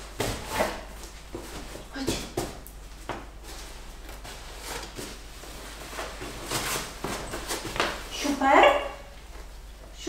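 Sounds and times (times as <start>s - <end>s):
cushion rustling: 2.9s - 8.3s.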